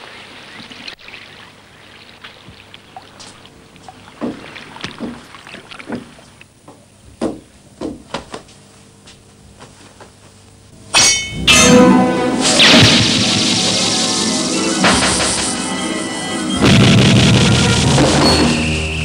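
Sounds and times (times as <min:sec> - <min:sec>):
water washing: 0:00.0 - 0:06.5, 0:12.4 - 0:18.2
knocks and splashes of boarding: 0:02.1 - 0:06.4.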